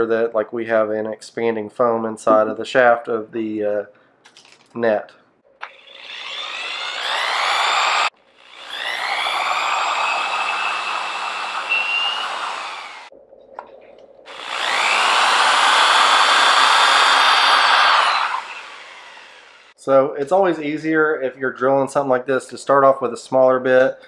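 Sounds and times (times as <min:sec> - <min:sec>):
electric drill boring holes: 0:05.6 - 0:13.1, 0:14.3 - 0:19.8.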